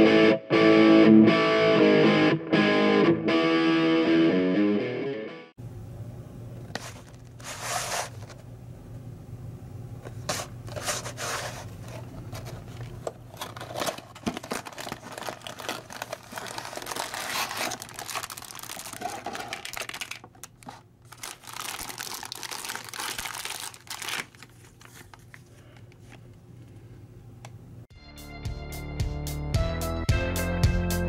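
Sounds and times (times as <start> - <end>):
plastic bags crinkling: 12.0 - 25.8
cardboard box tearing: 13.4 - 19.9.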